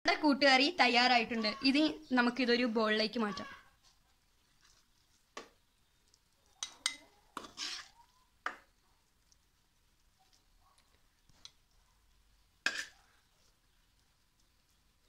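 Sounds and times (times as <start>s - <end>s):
ladle scraping pan: 6.6s - 8.0s.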